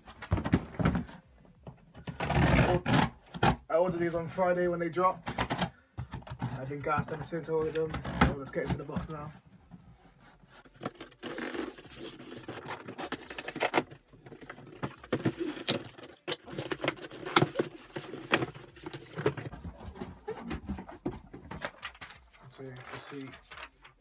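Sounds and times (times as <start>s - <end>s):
cardboard rustling and scraping: 5.2s - 24.0s
packing tape tearing: 10.8s - 19.2s.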